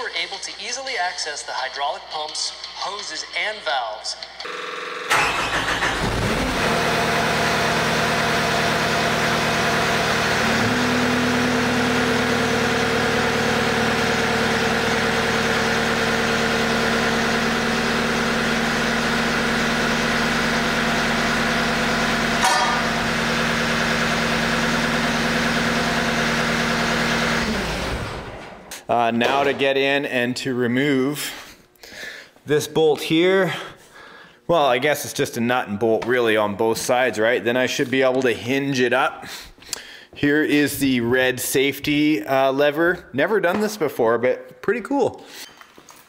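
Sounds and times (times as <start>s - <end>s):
diesel engine running: 4.5s - 28.8s.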